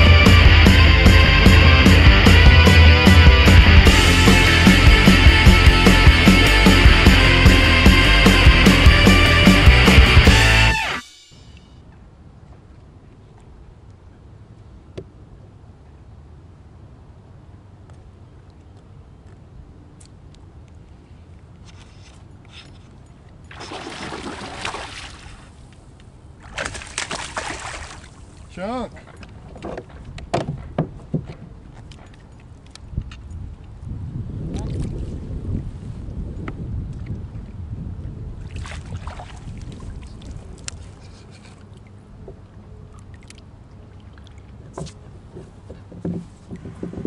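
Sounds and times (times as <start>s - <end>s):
fish splashing in water: 23.5s - 25.7s, 26.4s - 28.5s, 38.4s - 42.0s
fishing gear clicks and taps: 31.2s - 33.7s
wind noise on microphone: 32.7s - 41.4s, 44.7s - 47.0s.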